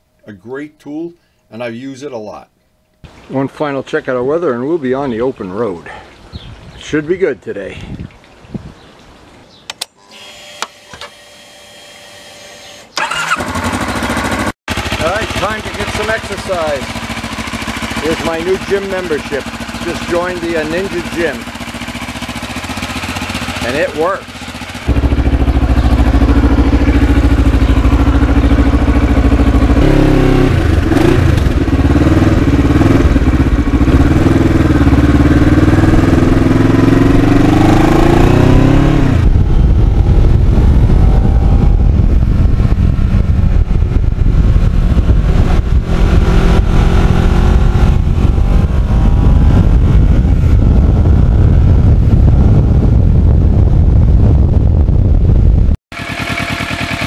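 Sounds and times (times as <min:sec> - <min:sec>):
wind rushing over microphone: 0:06.3 - 0:06.8, 0:07.7 - 0:08.9, 0:16.1 - 0:55.8
motorcycle engine: 0:12.9 - 0:57.0.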